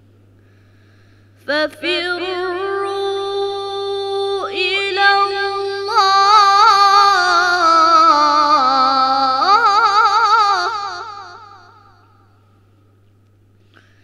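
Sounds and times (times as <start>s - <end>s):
boy reciting melodically: 1.5s - 12.0s.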